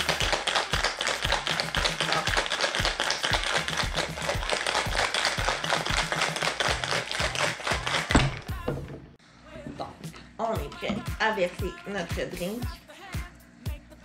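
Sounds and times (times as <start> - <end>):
cocktail shaker rattling: 0.0 - 8.2
background music with bass: 0.0 - 9.0, 10.0 - 14.0.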